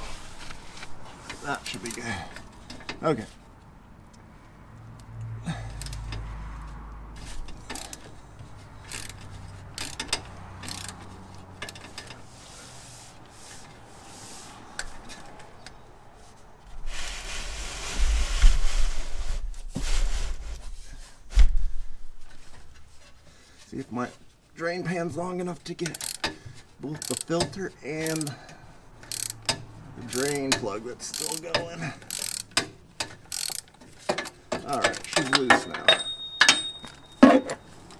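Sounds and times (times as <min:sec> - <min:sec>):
hand tools clicking and clanking: 0:00.0 - 0:14.0, 0:14.6 - 0:15.9, 0:25.5 - 0:37.9
loud scraping with low rumble: 0:16.7 - 0:22.0.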